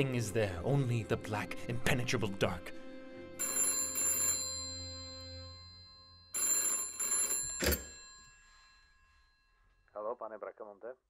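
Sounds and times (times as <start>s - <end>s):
telephone bell ringing: 3.4s - 9.9s.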